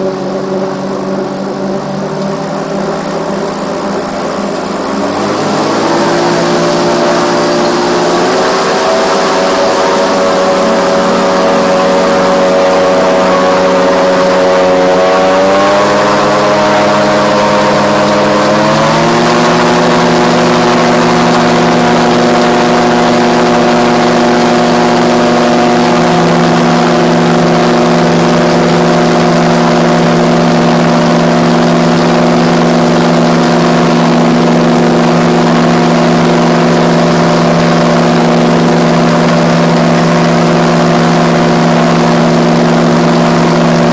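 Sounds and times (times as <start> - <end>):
gyroplane engine and propeller: 0.0 - 43.9.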